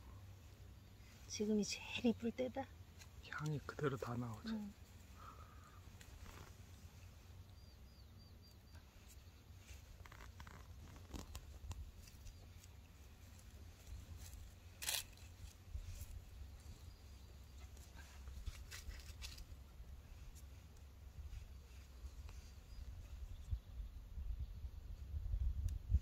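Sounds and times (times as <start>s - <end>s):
leaf rustle: 2.8s - 7.5s, 8.8s - 23.4s
knife snipping stems: 14.2s - 15.6s.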